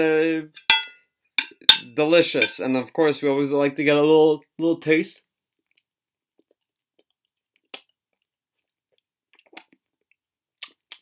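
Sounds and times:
lip smacks and mouth clicks: 5.6 - 11.0
person chewing: 5.6 - 11.0.

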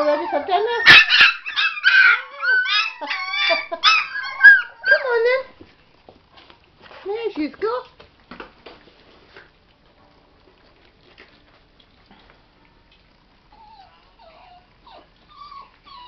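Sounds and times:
dog whimpering: 0.0 - 5.4, 13.5 - 16.0.

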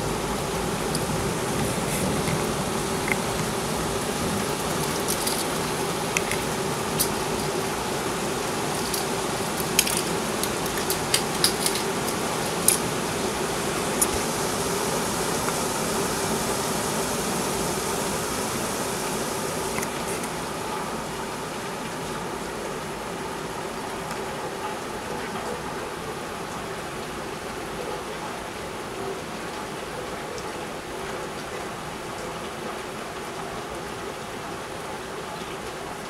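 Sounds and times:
steady rain falling: 0.0 - 36.0.

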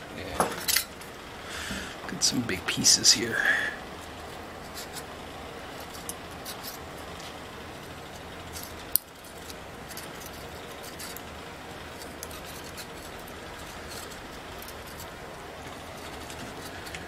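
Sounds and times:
scraper scratching metal: 4.5 - 5.1, 5.7 - 7.1, 7.8 - 17.0.

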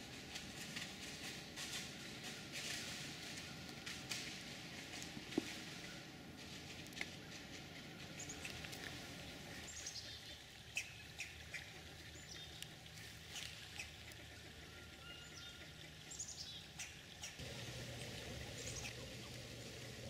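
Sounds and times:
small birds chirping: 7.2 - 14.2, 14.9 - 20.0.

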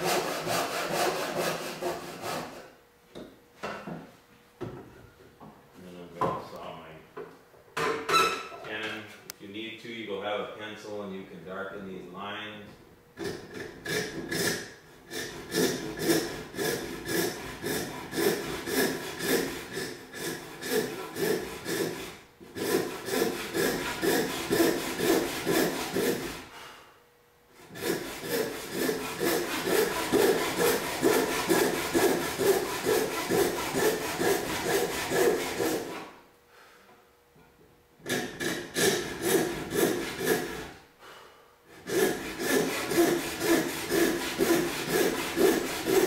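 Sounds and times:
hand saw cutting wood: 0.0 - 2.7, 13.2 - 26.6, 27.6 - 36.2, 38.0 - 40.8, 41.7 - 46.0.

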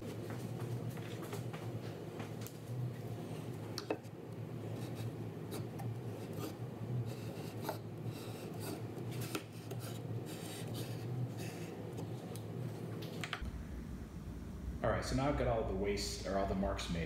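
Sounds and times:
steady low hum: 0.0 - 17.0
pencil scratching on plywood: 4.8 - 11.8.

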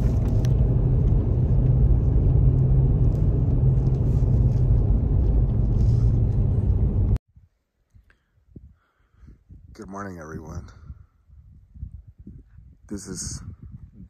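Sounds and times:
vehicle road and engine drone: 0.0 - 7.2.

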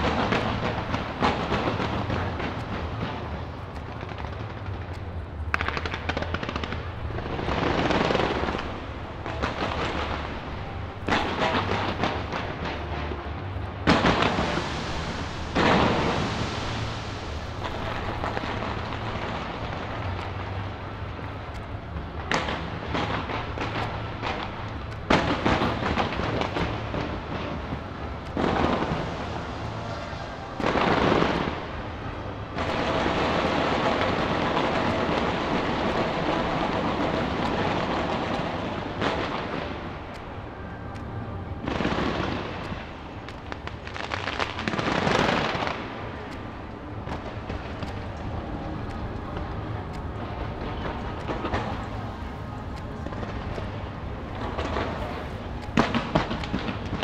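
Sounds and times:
fireworks booms: 0.0 - 21.0, 22.2 - 40.2, 41.6 - 46.0
fireworks crackling and rumble: 0.0 - 57.0.

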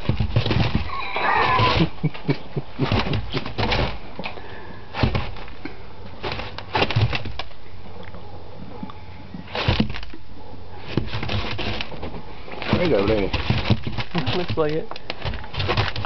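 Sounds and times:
puppy digging through dry corn: 0.0 - 4.2, 4.9 - 7.6, 9.4 - 16.0
corn kernels rustling: 2.8 - 7.6, 9.4 - 10.2, 10.8 - 16.0.

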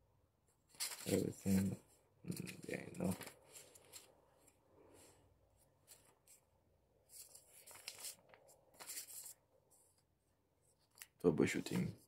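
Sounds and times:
paper leaflets rustling: 0.7 - 4.6, 5.7 - 10.0.

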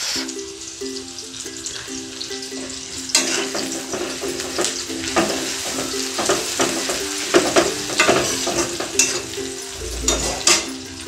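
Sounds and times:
onions sizzling in oil: 0.0 - 11.0
spatula scraping metal pan: 6.7 - 11.0.

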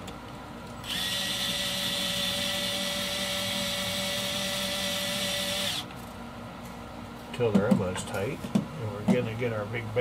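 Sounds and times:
power driver motor whine: 0.8 - 6.0.

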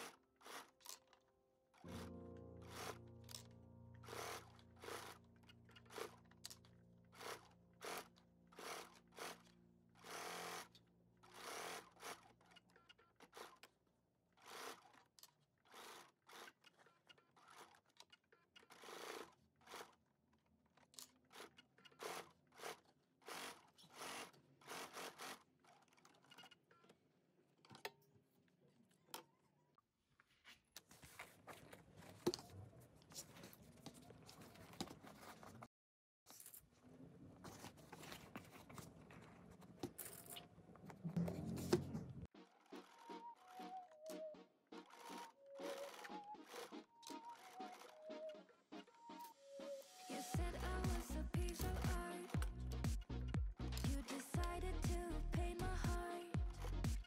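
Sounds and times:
sewing machine stitching: 0.0 - 27.0, 40.9 - 48.5.

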